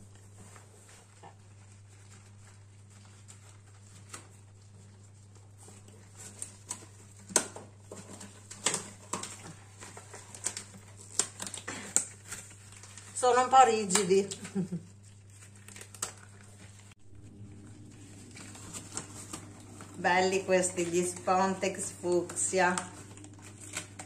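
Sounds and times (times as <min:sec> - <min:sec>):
low steady hum: 0:00.0 - 0:24.0
rubber gloves snapping: 0:06.4 - 0:12.9.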